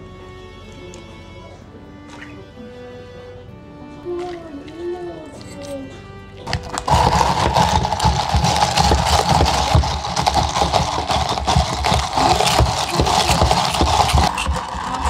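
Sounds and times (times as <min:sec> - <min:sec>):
ice rattling in plastic cup: 0:06.5 - 0:15.0.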